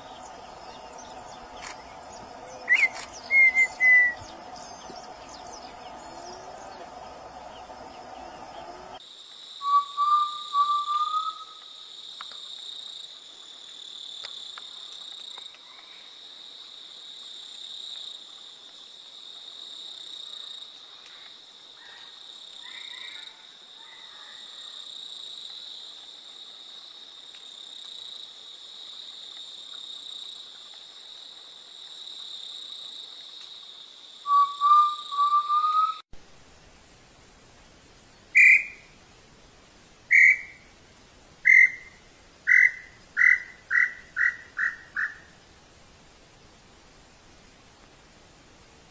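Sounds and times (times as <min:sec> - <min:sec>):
birds whistling: 0:00.0 - 0:08.9, 0:09.6 - 0:11.5, 0:34.3 - 0:36.0, 0:38.4 - 0:38.8, 0:40.1 - 0:40.6, 0:41.4 - 0:45.3
insects droning: 0:00.0 - 0:48.9.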